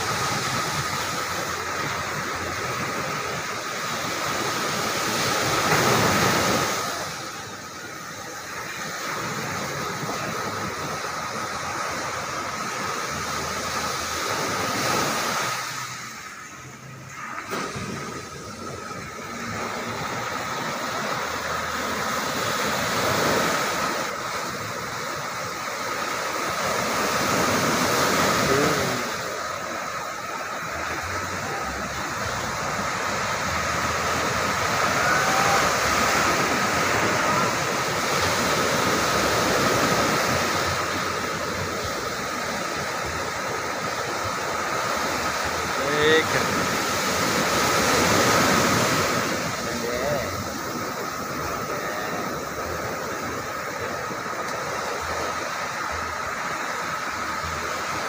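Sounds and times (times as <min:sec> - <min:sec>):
surf breaking on beach: 0:00.0 - 0:58.0.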